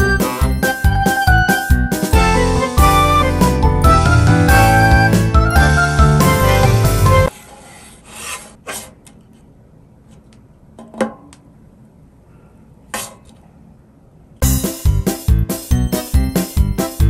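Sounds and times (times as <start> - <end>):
spatula scraping on a griddle: 7.3 - 9.0.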